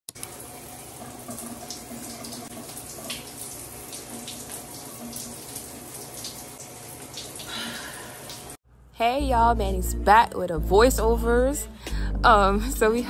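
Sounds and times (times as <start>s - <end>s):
shower water running: 0.1s - 8.6s
water splashes: 0.2s - 8.6s.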